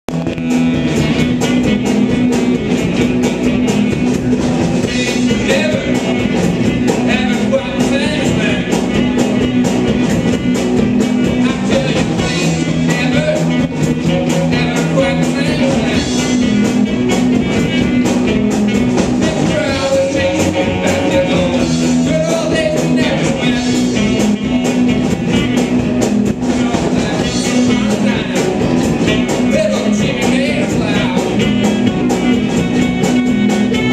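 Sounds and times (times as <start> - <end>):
bass guitar: 0.0 - 33.9
drums: 0.0 - 33.9
electric guitar: 0.1 - 33.9
saxophone: 0.1 - 33.9
person singing lead vocal: 4.8 - 9.0, 11.2 - 16.7, 19.0 - 24.5, 26.3 - 32.0.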